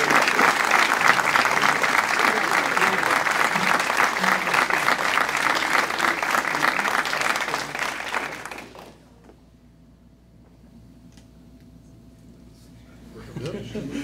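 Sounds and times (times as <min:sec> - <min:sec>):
audience applauding: 0:00.0 - 0:09.1
faint steady hum: 0:00.0 - 0:14.0.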